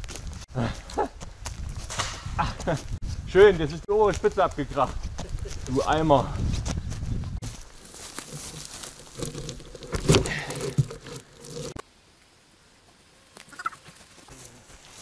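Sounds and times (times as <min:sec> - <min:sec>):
branches rustling and knocking: 0:04.0 - 0:11.8.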